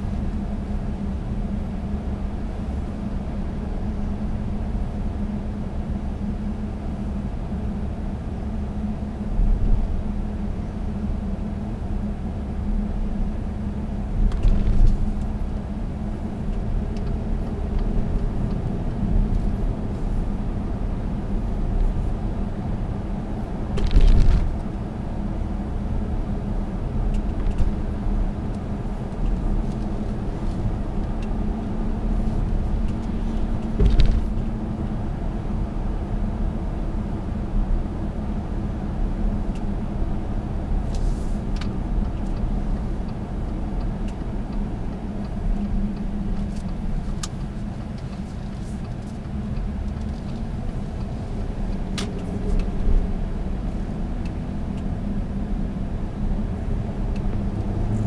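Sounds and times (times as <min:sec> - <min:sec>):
diesel engine drone: 0:00.0 - 0:58.0
tyre and road rumble: 0:23.4 - 0:25.0, 0:26.8 - 0:35.5
car bumps: 0:33.7 - 0:34.4.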